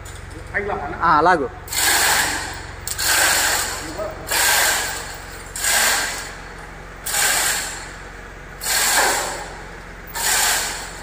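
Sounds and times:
chain hoist rattling and clicking: 1.7s - 6.3s.

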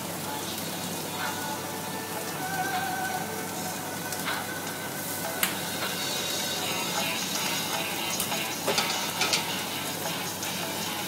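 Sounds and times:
gas burner noise: 0.0s - 11.0s
noodles sizzling in a wok: 0.0s - 11.0s
metal utensils clinking on wok: 7.0s - 9.6s.

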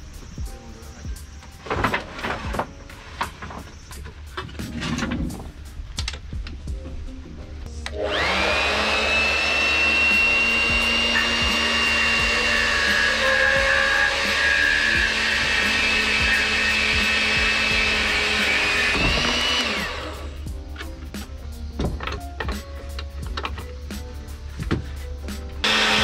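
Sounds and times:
electric saw cutting wood: 7.8s - 20.5s, 25.6s - 26.0s.

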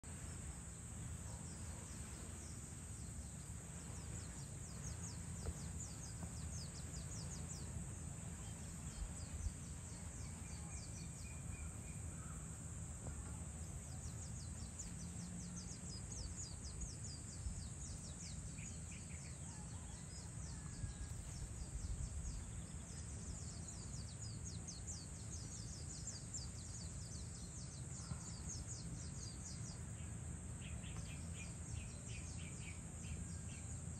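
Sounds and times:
steady low rumble: 0.0s - 19.3s
insects chirping in trills: 0.0s - 33.9s.

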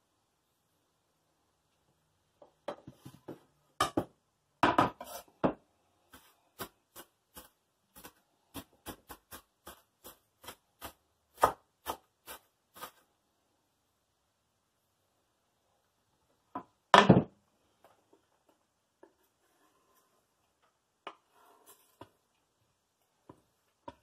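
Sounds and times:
knife chopping on wooden board: 6.6s - 12.9s.

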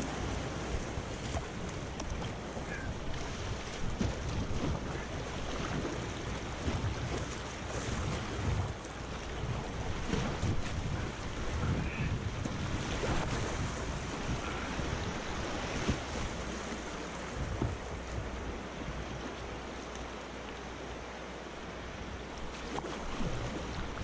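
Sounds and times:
wind buffeting microphone: 0.0s - 19.3s
water rushing: 0.0s - 24.0s.

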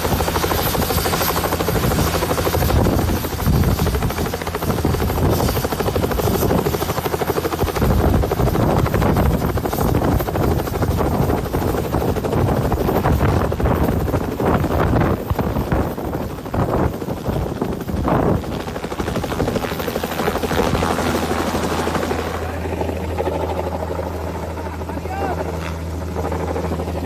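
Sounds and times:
helicopter engine noise: 0.0s - 27.0s
helicopter rotor chopping: 0.0s - 27.0s.

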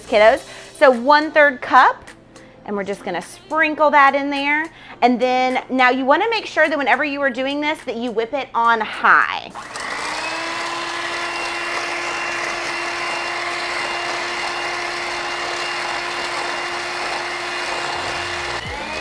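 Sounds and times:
electric hand mixer whipping cream: 9.6s - 19.0s.

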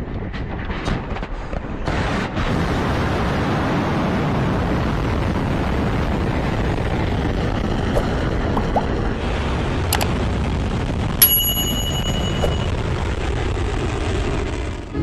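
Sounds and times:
crackling noise: 4.8s - 11.2s, 12.5s - 15.0s.

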